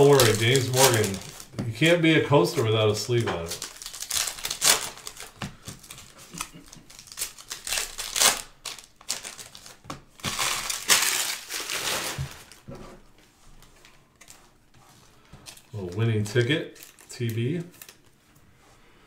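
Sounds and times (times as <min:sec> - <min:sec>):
foil wrapper tearing: 0:00.0 - 0:01.5, 0:02.9 - 0:12.6, 0:15.5 - 0:18.2
foil wrapper crinkling: 0:00.0 - 0:12.7, 0:13.6 - 0:18.2.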